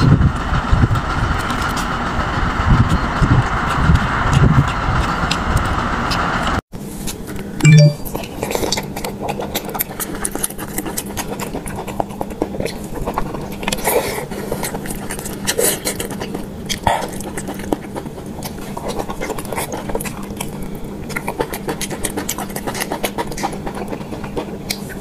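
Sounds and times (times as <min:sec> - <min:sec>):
low-pitched blip: 0:07.7 - 0:08.0
wet chewing and biting: 0:08.1 - 0:25.0.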